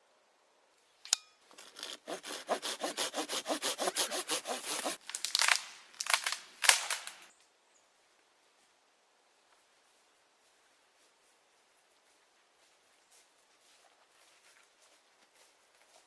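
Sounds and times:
hand saw cutting branch: 0:01.5 - 0:05.0
branch cracking: 0:04.9 - 0:07.3.

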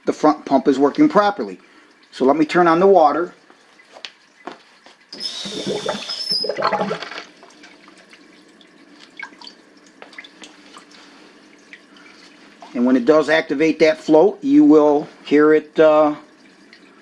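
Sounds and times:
water rushing from tap: 0:02.1 - 0:13.2
water flowing through hose: 0:05.1 - 0:07.8
high whistle: 0:05.2 - 0:06.6.

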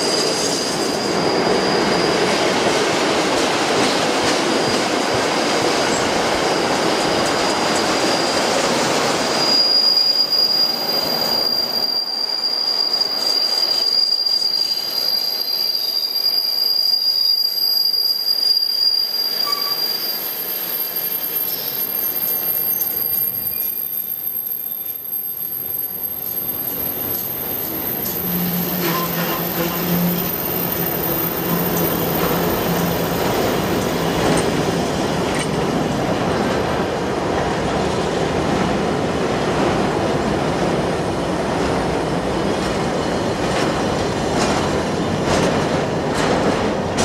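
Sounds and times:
high-pitched wheel squeal: 0:00.0 - 0:02.7, 0:07.5 - 0:35.0
freight train wheels rumbling: 0:00.0 - 0:16.9, 0:17.5 - 0:47.0.

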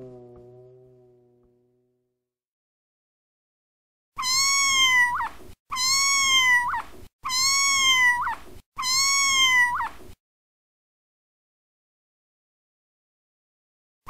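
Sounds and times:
kitten meowing: 0:04.2 - 0:10.0.

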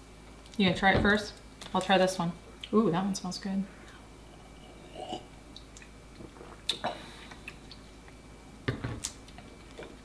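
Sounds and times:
people sipping and swallowing: 0:04.4 - 0:08.2.

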